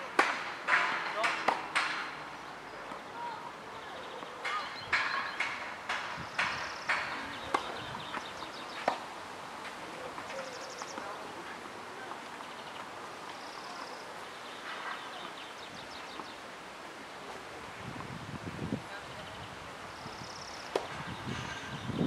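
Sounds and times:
tennis racket hitting ball: 0.0 - 2.2, 8.8 - 9.1.

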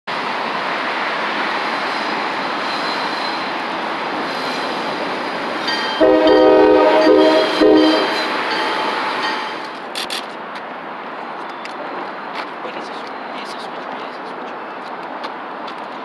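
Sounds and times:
road traffic: 0.1 - 16.0
train rumbling past: 0.1 - 16.0
locomotive air horn: 6.0 - 8.3.

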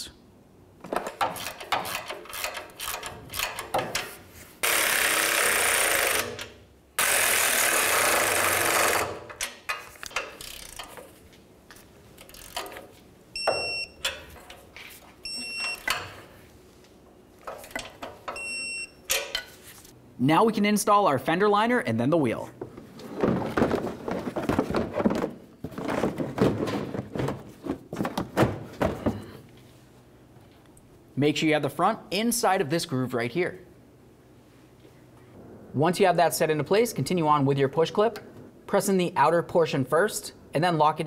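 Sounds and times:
ratchet clicking: 1.2 - 11.1, 12.2 - 12.9
power ratchet running: 4.6 - 9.3
torque wrench high beeps: 13.4 - 14.1, 15.3 - 16.0, 18.4 - 19.0.

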